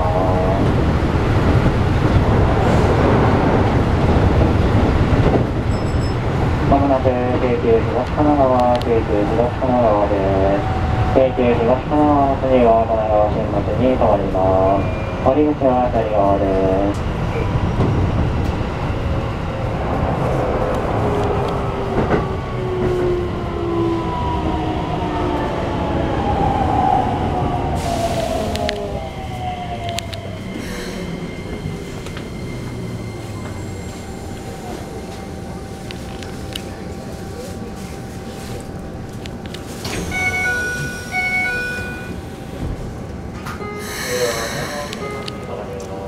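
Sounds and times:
wheels rumbling on rail: 0.0 - 46.0
electronic two-tone door chime: 40.1 - 42.2.

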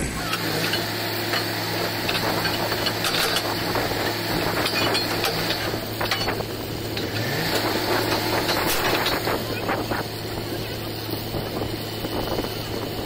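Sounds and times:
drilling rig engine drone: 0.0 - 13.0
shovel clinks and scrapes: 0.3 - 9.8.

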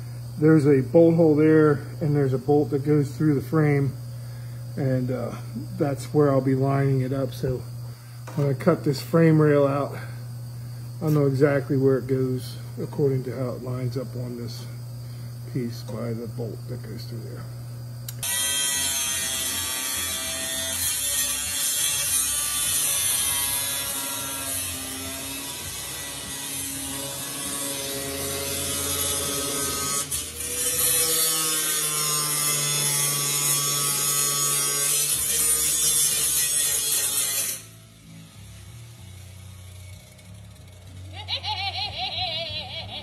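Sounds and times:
power tool whining on steel: 18.1 - 41.8.

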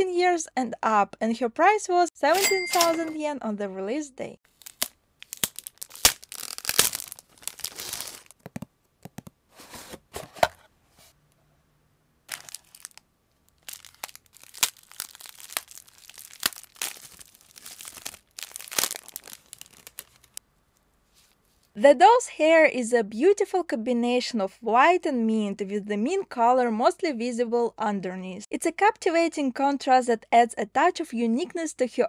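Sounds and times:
plastic bags crinkling: 4.5 - 8.6, 12.3 - 20.4
plastic wrapping tearing: 4.5 - 8.6, 12.3 - 20.4.

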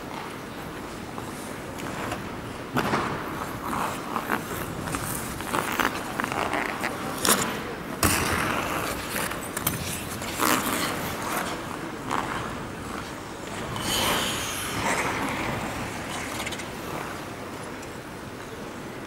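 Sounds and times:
skate blades scraping ice: 3.3 - 17.6.

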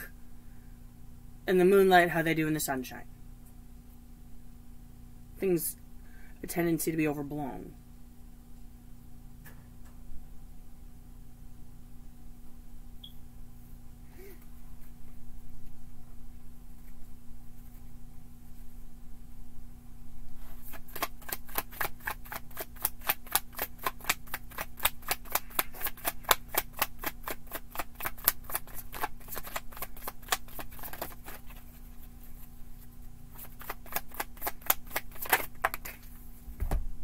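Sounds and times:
cards being shuffled: 20.4 - 36.4
dull thump: 36.6 - 37.0.

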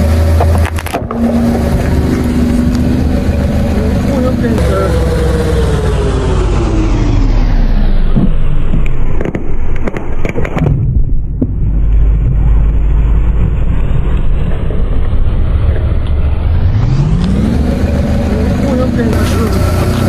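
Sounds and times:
car engine rumble: 0.0 - 20.0
plastic ball cracking and popping: 8.2 - 12.0.

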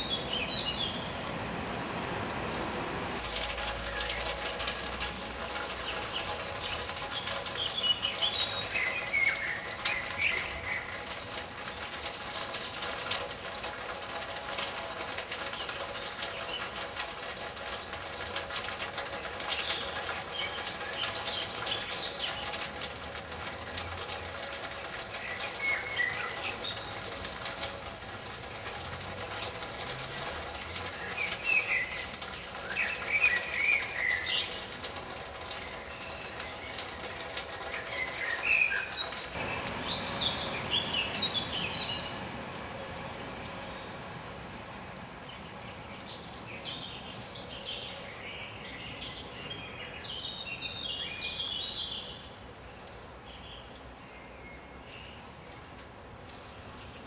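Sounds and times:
outdoor background hiss: 0.0 - 57.0
small birds chirping: 3.8 - 12.9, 30.8 - 34.7, 35.5 - 42.2, 44.5 - 55.7.

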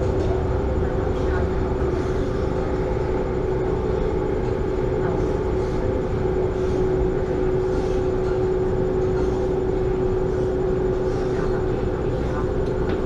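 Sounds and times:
droning hum: 0.0 - 13.0
train cabin rumble: 0.0 - 13.0.

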